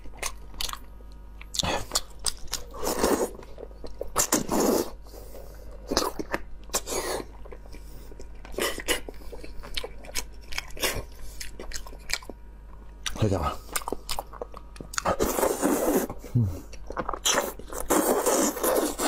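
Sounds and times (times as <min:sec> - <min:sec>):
wet chewing: 0:00.0 - 0:04.9, 0:05.7 - 0:19.0
sucking and slurping: 0:15.0 - 0:16.3, 0:17.1 - 0:19.0.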